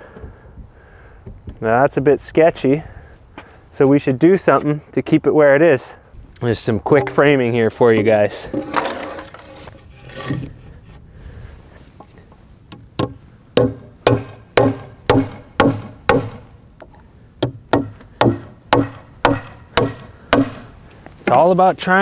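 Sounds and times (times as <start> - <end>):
hammer driving nails into wood: 12.7 - 16.5, 17.4 - 20.6.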